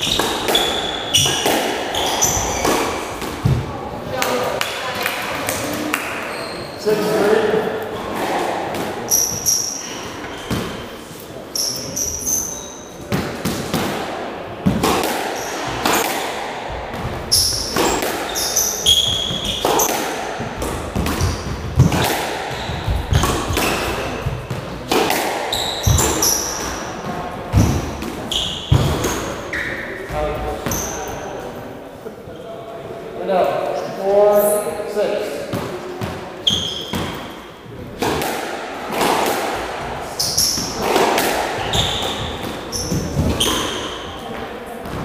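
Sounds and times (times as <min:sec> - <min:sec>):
shoe soles squeaking on floor: 0:00.0 - 0:03.6, 0:06.1 - 0:07.4, 0:09.0 - 0:13.1, 0:15.4 - 0:16.1, 0:17.2 - 0:20.1, 0:21.0 - 0:24.7, 0:25.4 - 0:31.3, 0:36.4 - 0:37.4, 0:40.0 - 0:41.0, 0:41.6 - 0:45.0
squash ball hits: 0:00.0 - 0:06.2, 0:08.0 - 0:10.8, 0:13.1 - 0:30.7, 0:35.5 - 0:45.0.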